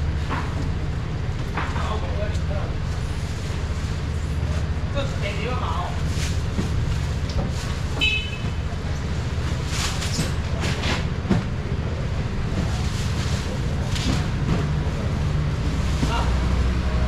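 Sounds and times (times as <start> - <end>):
market crowd noise: 0.0 - 17.0
knocks and clatter: 9.5 - 11.8, 12.4 - 15.0.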